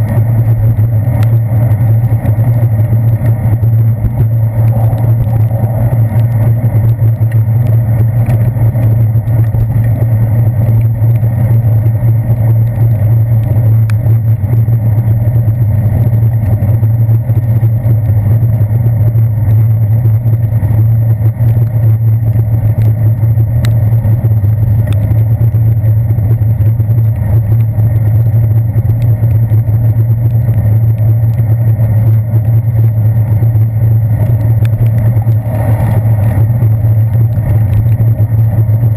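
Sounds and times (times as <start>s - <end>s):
faint ticks: 0.0s - 14.7s, 23.6s - 24.0s, 24.6s - 25.5s, 26.6s - 38.9s
wind and road rumble: 0.0s - 38.9s.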